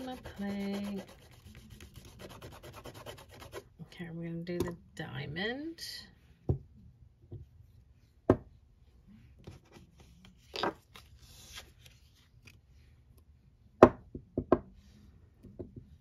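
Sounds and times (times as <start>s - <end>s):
scraping rasp: 0.0s - 3.6s.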